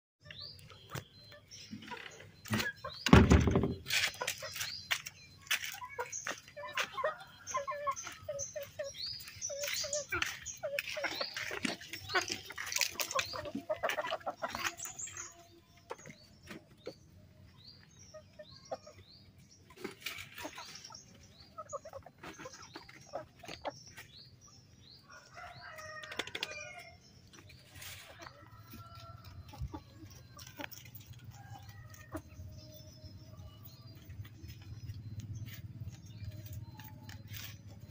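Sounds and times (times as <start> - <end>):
chickens clucking: 0.2 - 37.9.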